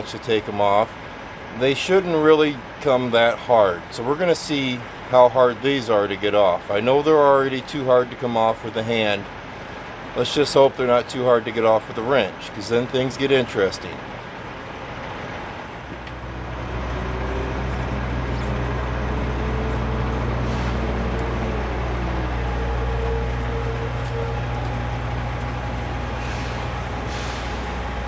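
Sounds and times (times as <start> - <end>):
diesel truck engine running: 0.0 - 28.0
faint whine: 15.4 - 28.0.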